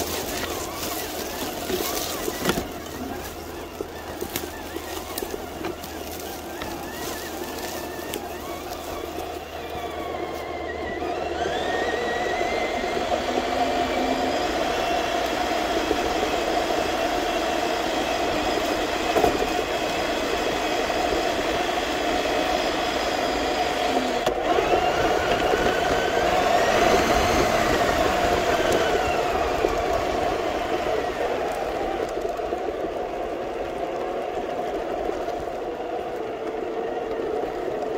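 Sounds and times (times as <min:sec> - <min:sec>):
electric motor whine: 0:00.0 - 0:37.9
tyres rolling over dirt and gravel: 0:00.0 - 0:37.9.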